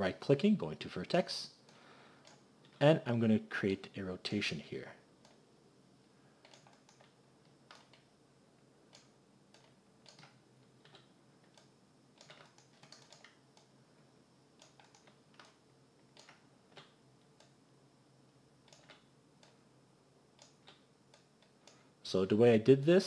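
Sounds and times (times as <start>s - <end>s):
faint steady hum: 0.0s - 23.0s
mouse and keyboard clicks: 6.4s - 8.1s, 8.9s - 13.7s, 14.6s - 17.6s, 18.7s - 19.6s.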